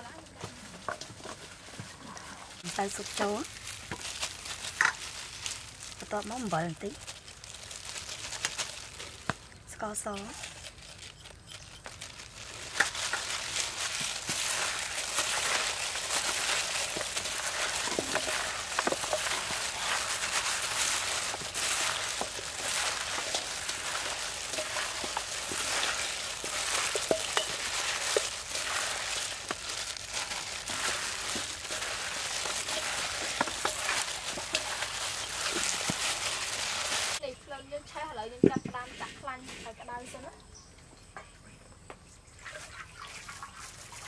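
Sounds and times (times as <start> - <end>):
plastic gloves rustling: 0.0 - 37.2
wet meat squelching: 3.0 - 9.5, 10.4 - 37.2
birds clicking against metal bowl: 14.3 - 37.1.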